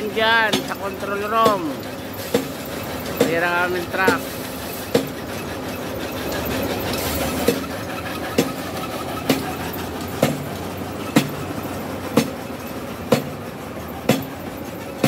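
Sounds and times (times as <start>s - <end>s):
conveyor belt rumble: 0.0s - 15.0s
sharp clack: 0.0s - 15.0s.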